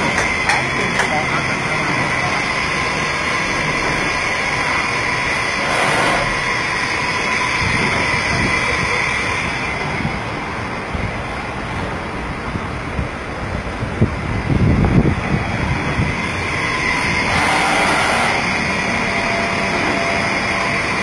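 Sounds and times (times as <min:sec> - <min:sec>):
machine spindle high whine: 0:00.0 - 0:10.2, 0:15.0 - 0:21.0.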